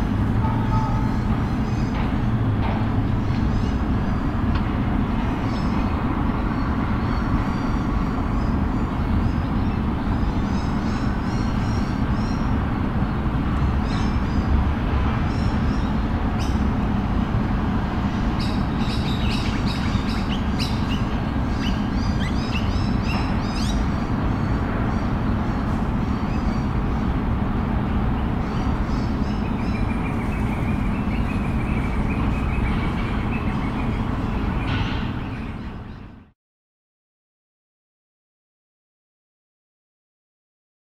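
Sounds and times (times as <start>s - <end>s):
low rumble of city traffic: 0.0s - 36.4s
small birds chirping: 18.1s - 27.2s, 27.9s - 36.2s.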